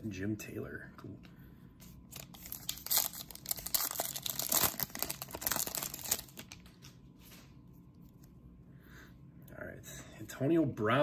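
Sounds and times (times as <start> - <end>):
card pack wrapper crinkling and tearing: 2.1 - 6.9.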